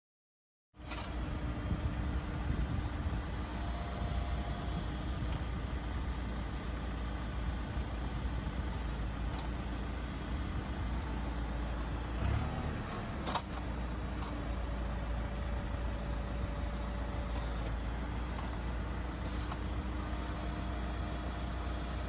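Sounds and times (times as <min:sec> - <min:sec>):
sharp click or scrape: 0:00.8 - 0:01.2
tractor engine running: 0:00.8 - 0:22.0.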